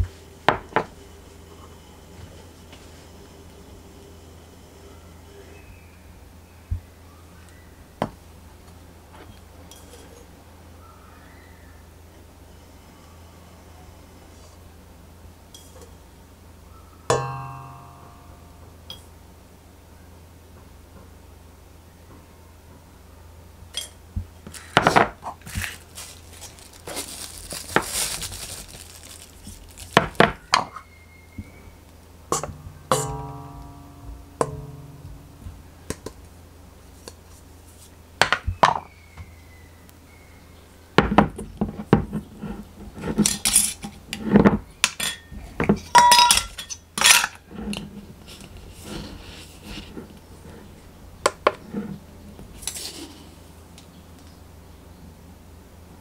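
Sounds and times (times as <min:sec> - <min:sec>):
utensils clinking on metal bowl: 0:32.3 - 0:35.4, 0:44.8 - 0:47.8.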